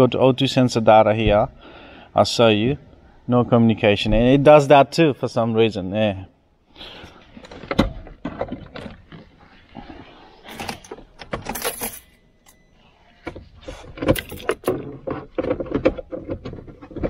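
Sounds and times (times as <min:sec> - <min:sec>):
handling clicks and knocks: 0:13.2 - 0:17.0.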